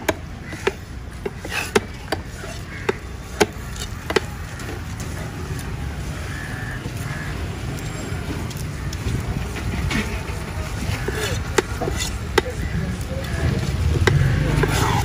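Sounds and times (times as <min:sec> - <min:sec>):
cleaver chopping on wooden block: 0:13.9 - 0:15.0.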